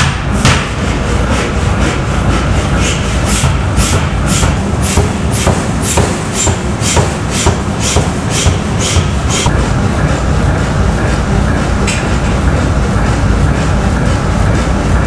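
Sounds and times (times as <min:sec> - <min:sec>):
power hammer blows on steel: 0:00.0 - 0:09.6
machine running rumble: 0:00.0 - 0:15.0.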